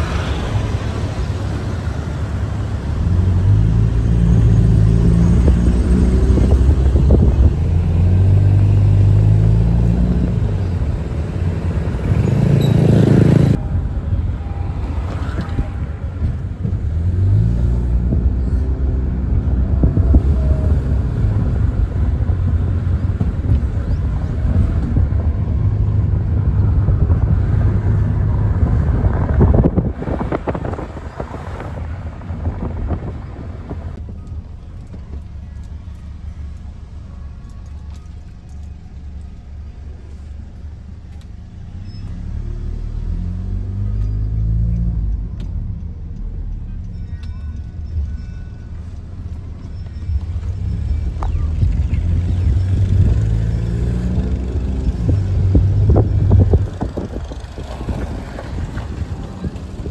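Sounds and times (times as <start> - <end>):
low road rumble: 0.0 - 59.9
car engine accelerating through gears: 2.9 - 13.6, 41.7 - 46.6, 50.0 - 59.9.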